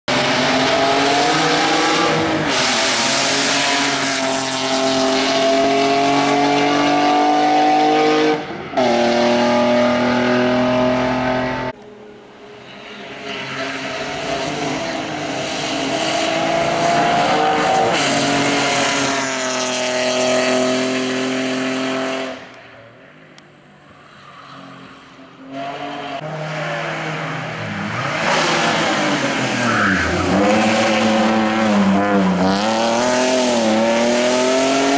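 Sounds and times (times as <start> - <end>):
race car engine accelerating: 25.5 - 34.9.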